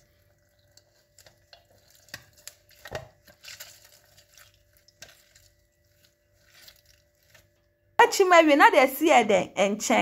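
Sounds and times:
fruit squelching: 0.0s - 7.8s.

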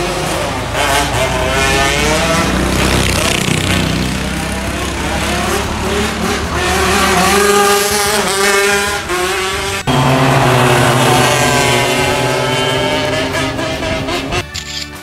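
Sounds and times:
go-kart engines revving: 0.0s - 14.6s
steady falling engine note: 6.7s - 14.4s.

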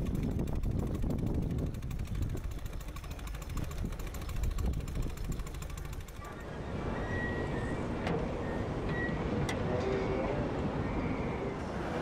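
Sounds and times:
steam engine fast ticking beat: 0.0s - 6.4s.

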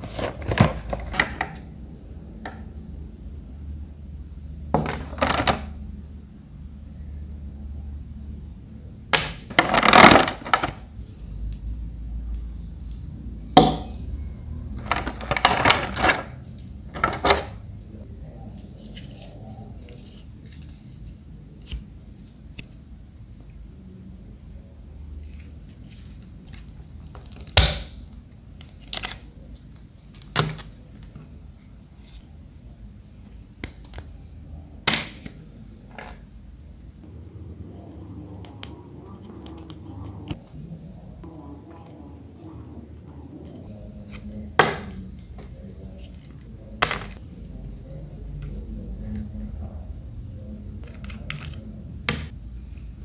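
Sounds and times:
hard plastic parts clicking: 9.2s - 10.8s, 14.8s - 16.3s, 16.9s - 17.6s.

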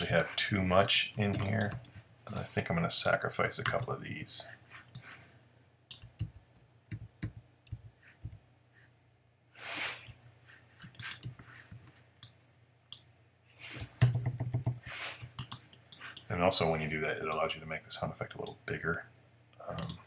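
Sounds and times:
short breathy hiss: 9.6s - 10.1s.

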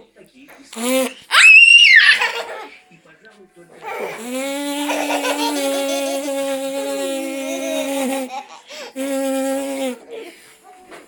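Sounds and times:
toddler laughing and giggling: 4.8s - 6.6s, 7.4s - 8.9s.

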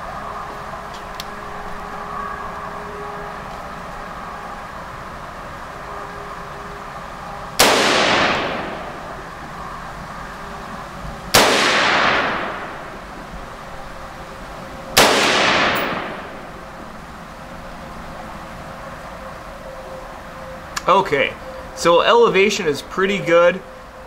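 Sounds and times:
rifle shots with echo: 7.6s - 9.2s, 11.3s - 13.0s, 15.0s - 16.6s.

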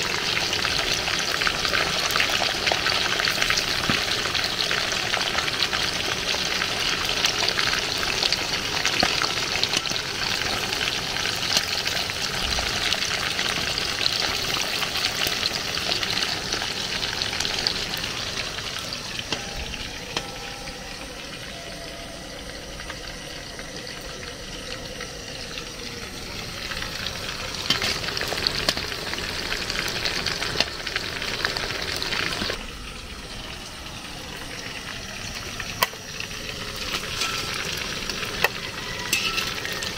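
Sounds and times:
fish sizzling in hot oil: 0.0s - 39.9s
metal spatula scraping pot: 39.1s - 39.7s.

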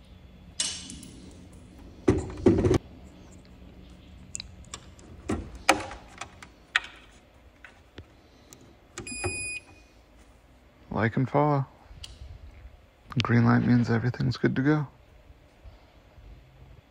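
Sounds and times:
heavy plastic thumps: 2.0s - 2.8s.

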